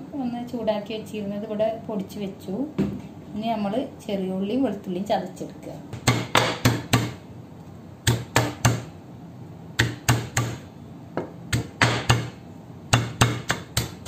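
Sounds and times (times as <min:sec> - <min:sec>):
stone pestle pounding in mortar: 0:06.0 - 0:07.2, 0:08.0 - 0:08.9, 0:09.8 - 0:10.6, 0:11.2 - 0:14.0.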